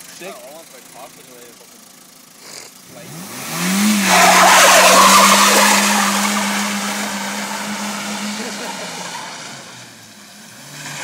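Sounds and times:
car engine revving: 0:00.4 - 0:11.0
tyres screeching on tarmac: 0:02.3 - 0:02.9, 0:03.8 - 0:10.0.

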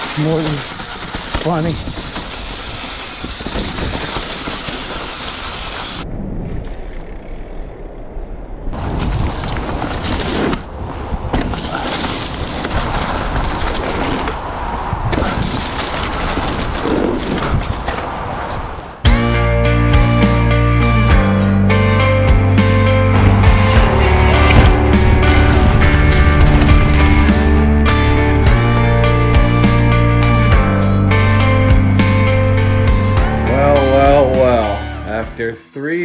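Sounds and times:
bike tyres rolling over dirt: 0:00.0 - 0:19.0, 0:23.1 - 0:30.8
wind buffeting microphone: 0:08.7 - 0:19.0.

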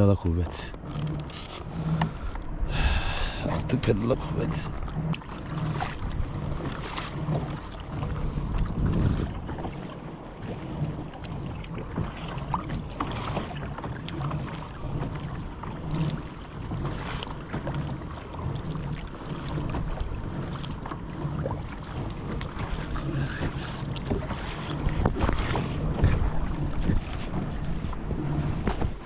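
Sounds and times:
pedal drive churning: 0:00.0 - 0:29.0
water against hull: 0:00.0 - 0:29.0
wind on microphone: 0:01.3 - 0:29.0.

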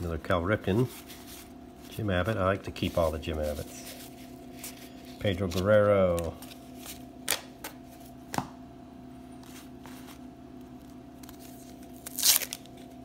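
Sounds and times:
faint steady hum: 0:00.0 - 0:13.0
paper rustle: 0:02.7 - 0:07.1.

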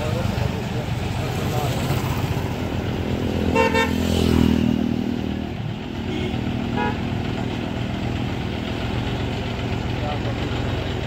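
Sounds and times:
tractor diesel engine running: 0:00.0 - 0:11.0
motorcycle passing: 0:00.9 - 0:08.9
horn toot: 0:03.5 - 0:04.2.

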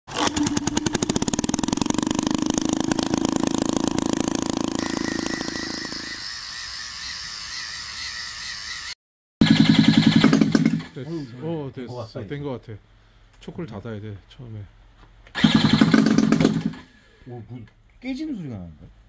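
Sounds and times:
small petrol engine running: 0:00.1 - 0:08.8, 0:15.4 - 0:16.8.

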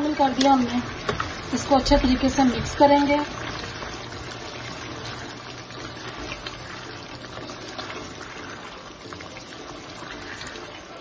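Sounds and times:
gravy bubbling in a pan: 0:00.0 - 0:11.0.

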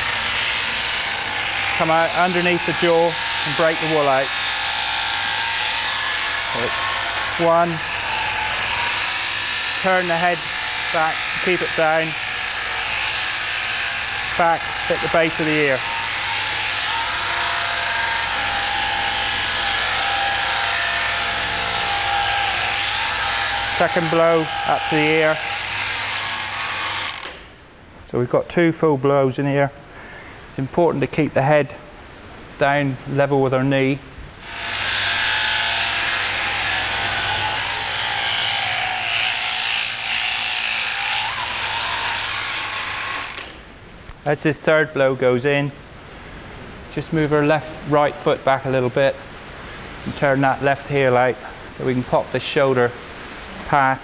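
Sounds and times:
shearing machine running: 0:00.0 - 0:27.4, 0:34.4 - 0:43.6.

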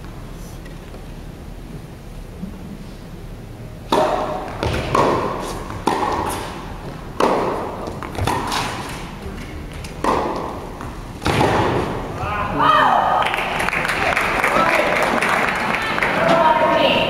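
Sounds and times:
ball bouncing on court: 0:03.9 - 0:12.0
rackets hitting tennis ball: 0:03.9 - 0:12.2
crowd noise: 0:11.8 - 0:17.0.

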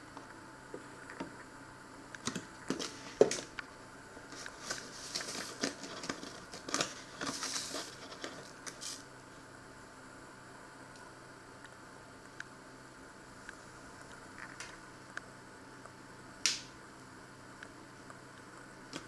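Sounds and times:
paper bag crinkling: 0:04.3 - 0:09.0.

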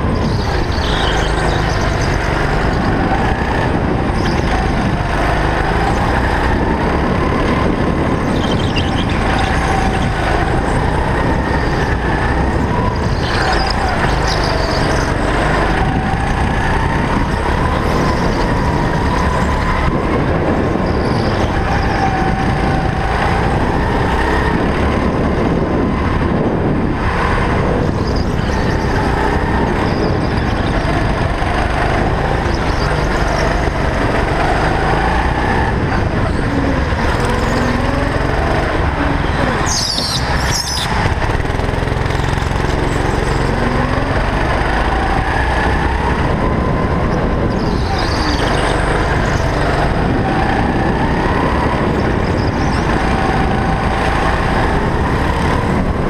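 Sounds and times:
go-kart engine running hard: 0:00.0 - 0:56.0.

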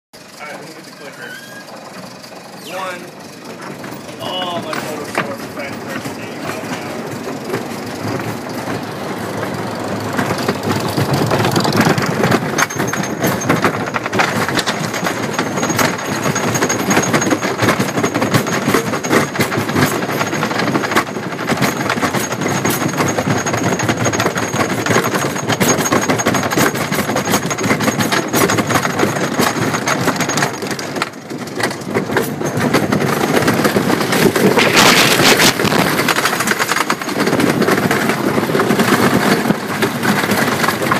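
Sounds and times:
roller coaster train rattling: 0:00.2 - 0:40.9
lift chain clicking: 0:01.0 - 0:40.9.

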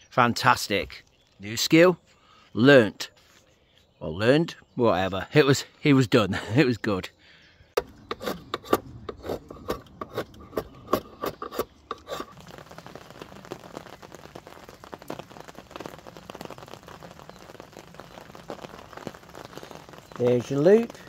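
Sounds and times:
rubbing and scraping strokes: 0:07.8 - 0:13.6
rain pattering: 0:11.8 - 0:21.0.

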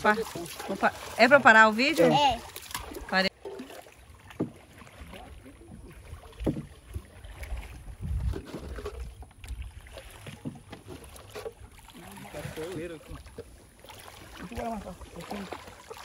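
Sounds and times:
knocks on wooden canoe hull: 0:06.3 - 0:07.0
wind on microphone: 0:07.3 - 0:09.8.

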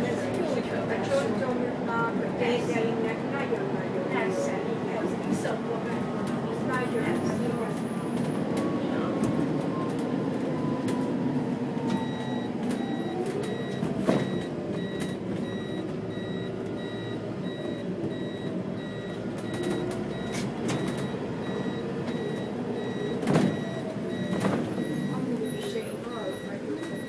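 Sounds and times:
bus engine hum with whine: 0:00.0 - 0:27.0
high electronic beep: 0:12.0 - 0:25.2.

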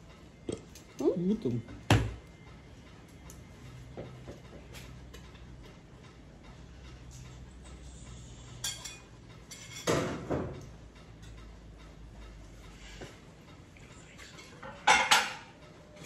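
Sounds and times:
pots and dishes clattering: 0:08.5 - 0:11.4, 0:14.2 - 0:16.0.

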